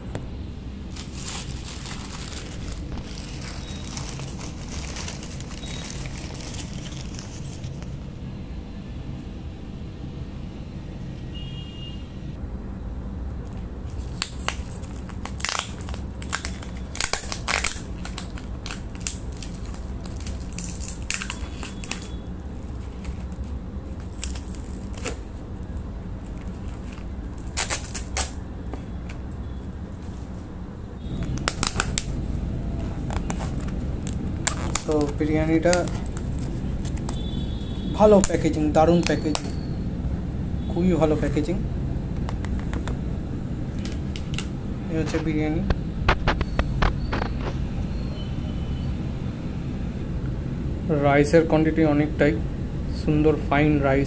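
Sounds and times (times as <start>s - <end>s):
steady low hum: 0.0s - 54.0s
packaging crinkling: 0.8s - 8.0s, 13.8s - 29.3s, 31.1s - 37.4s, 43.7s - 44.5s.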